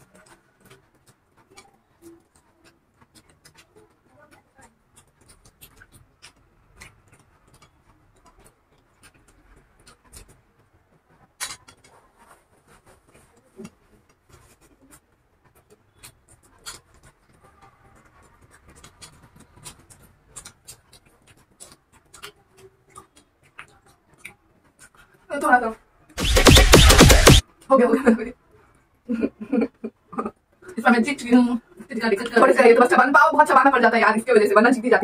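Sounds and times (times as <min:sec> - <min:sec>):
fingers tapping paper plates: 0:00.0 - 0:25.1.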